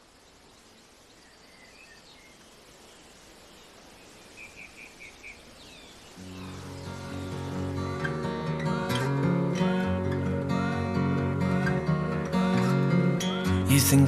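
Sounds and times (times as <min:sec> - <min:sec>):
background hiss: 0:00.0 - 0:14.0
bird chirps: 0:00.3 - 0:08.1.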